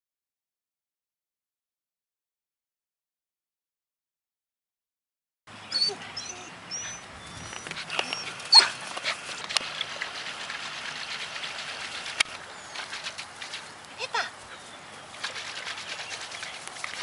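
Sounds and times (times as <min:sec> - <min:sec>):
puppies yipping and whimpering: 0:05.7 - 0:10.3.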